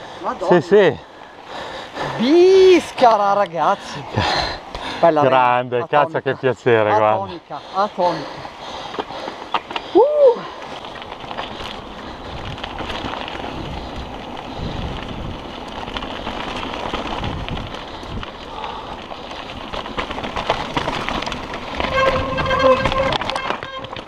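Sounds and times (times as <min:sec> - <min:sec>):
bike clicks and rattles: 0:01.4 - 0:05.0, 0:08.0 - 0:24.0
tyres rushing over gravel: 0:07.6 - 0:24.0.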